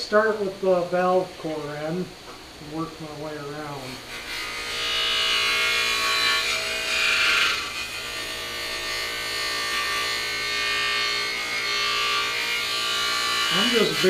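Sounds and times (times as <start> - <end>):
polishing wheel hissing on metal: 13.4 - 14.0.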